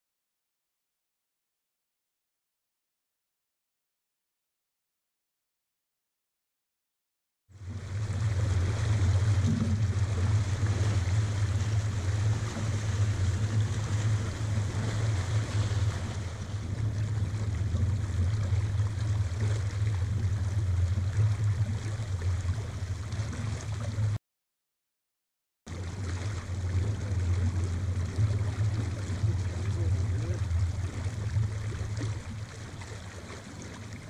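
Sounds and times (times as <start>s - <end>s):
water rushing along boat hull: 7.6s - 24.2s, 25.7s - 34.0s
wind rumble on microphone: 7.6s - 24.2s, 25.7s - 34.0s.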